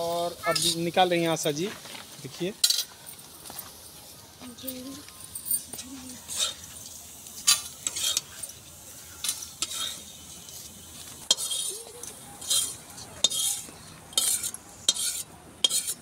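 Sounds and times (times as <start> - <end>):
faint sizzle of frying oil: 0.0 - 16.0
metal spatula scraping metal pan: 6.3 - 6.7, 7.5 - 8.4, 9.2 - 10.7, 11.3 - 11.8, 12.4 - 16.0.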